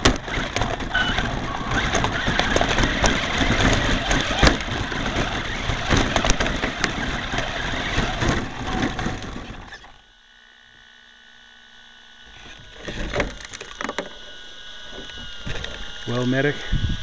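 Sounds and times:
truck knocking and scrabbling on dirt: 0.0s - 10.0s
faint steady whine: 0.0s - 17.0s
toy truck motor and tyres churning dirt: 0.0s - 17.0s.

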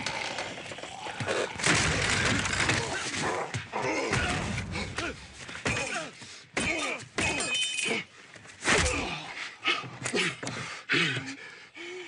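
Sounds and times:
things breaking: 0.0s - 3.1s
people grunting and groaning: 0.0s - 11.8s.

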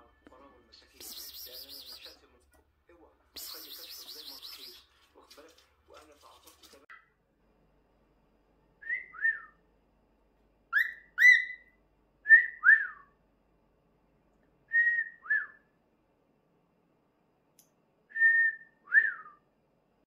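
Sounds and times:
cockatiel whistling: 1.0s - 2.2s, 3.4s - 4.9s, 8.8s - 9.6s, 10.7s - 13.1s, 14.7s - 15.6s, 18.2s - 19.4s.

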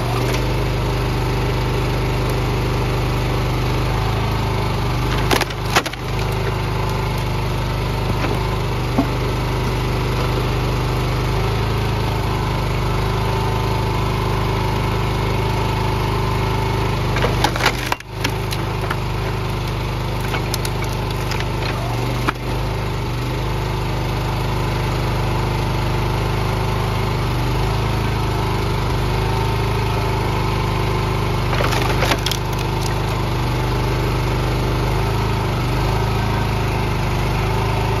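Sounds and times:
small engine running: 0.0s - 38.0s
wood cracking and splintering: 3.8s - 10.6s, 16.4s - 23.3s, 30.6s - 34.1s.

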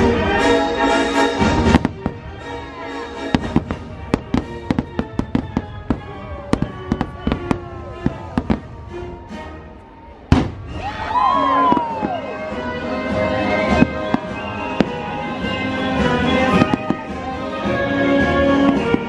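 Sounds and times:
orchestral music: 0.0s - 19.0s
fireworks exploding: 1.3s - 9.4s, 10.2s - 19.0s.

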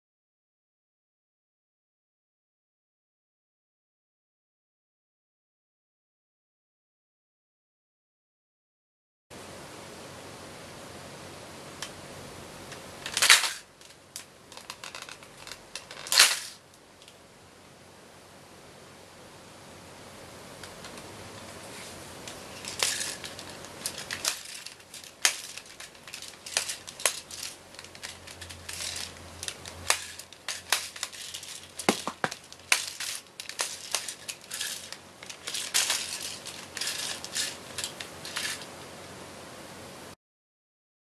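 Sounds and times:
steady background hiss: 9.4s - 40.2s
plastic toy clicking and rattling: 12.7s - 17.1s, 22.3s - 38.7s.

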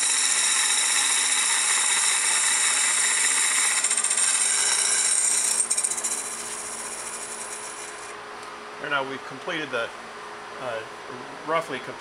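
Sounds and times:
lathe tool cutting wood: 0.0s - 8.1s
wood lathe running: 0.0s - 8.1s.

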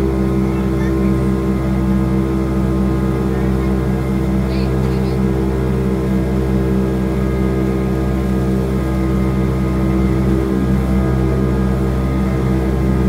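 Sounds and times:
jet boat engine droning: 0.0s - 13.0s.

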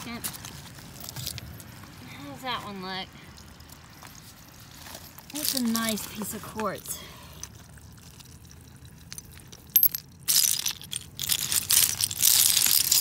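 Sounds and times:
hand digging through shells and pebbles: 3.3s - 13.0s
stones and shells clicking: 7.3s - 13.0s.

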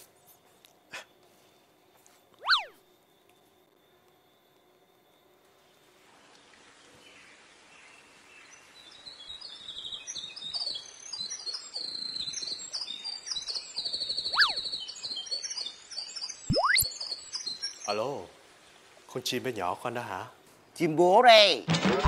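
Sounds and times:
small birds chirping: 2.4s - 2.8s, 6.4s - 19.0s.

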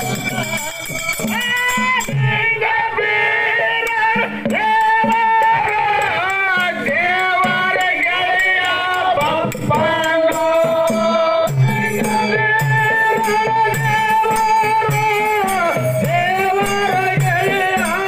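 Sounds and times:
drum beat: 0.0s - 18.0s
jingling percussion: 0.0s - 18.0s
man singing: 0.0s - 18.0s.

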